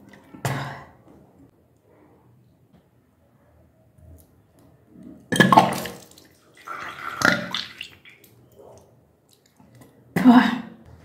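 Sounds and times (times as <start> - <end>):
liquid splashing into a basin: 5.3 - 8.5.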